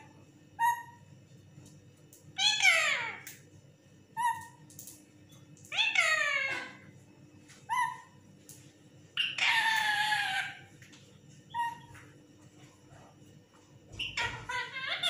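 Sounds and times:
parakeet calling: 0.6s - 1.0s, 2.4s - 3.3s, 4.2s - 4.6s, 5.7s - 6.8s, 7.7s - 8.1s, 9.2s - 10.7s, 11.5s - 12.0s, 13.9s - 15.0s.

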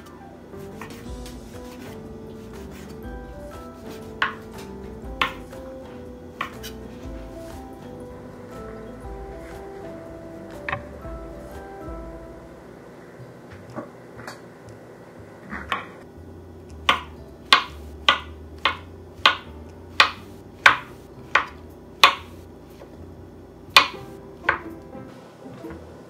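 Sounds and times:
knife chopping on cutting board: 0.7s - 7.6s, 16.8s - 22.4s, 23.7s - 24.7s.

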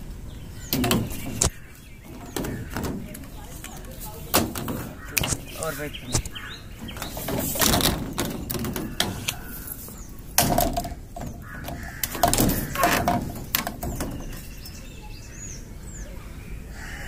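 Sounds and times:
sharp clicks and knocks: 0.7s - 14.7s
crows cawing: 4.8s - 6.7s, 8.6s - 10.0s, 10.6s - 13.4s, 16.7s - 17.0s.

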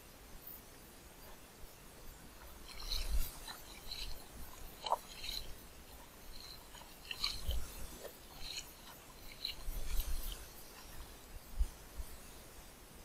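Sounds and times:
water dripping: 2.3s - 11.2s
hands splashing in water: 2.5s - 10.8s.

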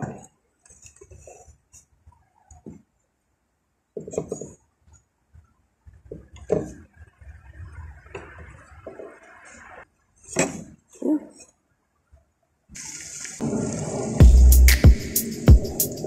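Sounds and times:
steady hiss: 12.8s - 16.0s.

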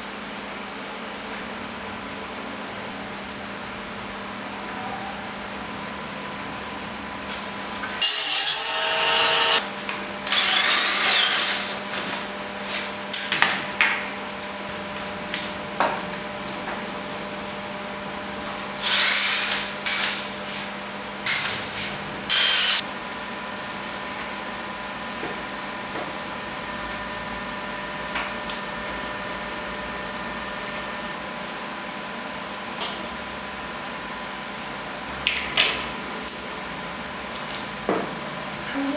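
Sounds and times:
cordless drill boring into wood: 8.2s - 9.6s, 10.2s - 11.7s.

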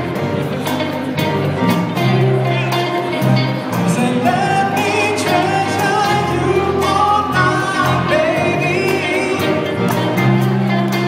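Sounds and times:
live band playing pop song: 0.0s - 11.0s
male lead vocal: 3.5s - 10.7s.

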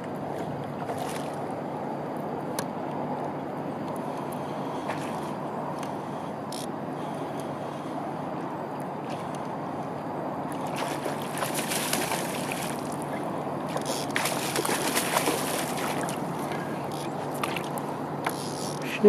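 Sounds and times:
fish splashing at water surface: 10.6s - 17.8s.

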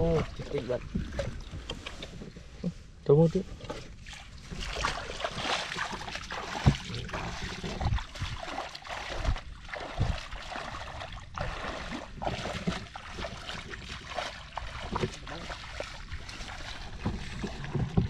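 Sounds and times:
water sloshing and splashing: 0.0s - 18.0s
dull knocks: 17.0s - 18.0s.

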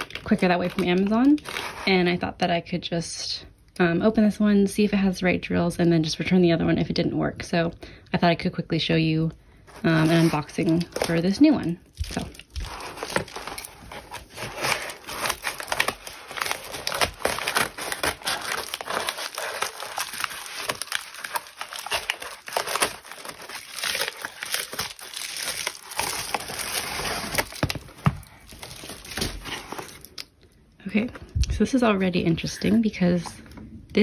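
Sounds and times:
padded mailer crinkling: 9.7s - 30.2s.

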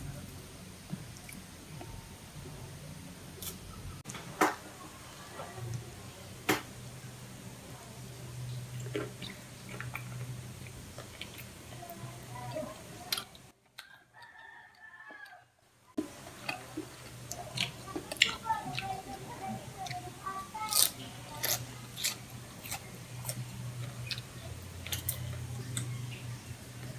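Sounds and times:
chewing: 8.7s - 15.4s, 16.0s - 26.3s
rooster crowing: 13.9s - 15.6s.

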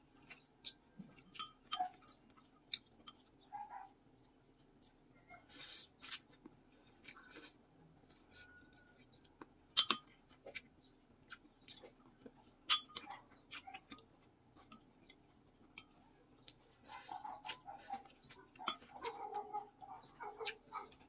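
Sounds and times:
slurping and chewing noodles: 4.7s - 21.0s.

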